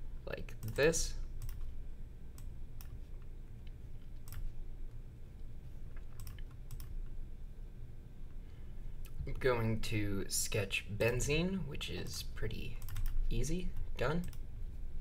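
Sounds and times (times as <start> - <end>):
low steady hum: 0.0 - 15.0
computer mouse clicking: 1.4 - 1.7, 2.3 - 4.5, 5.9 - 7.0, 12.8 - 13.2.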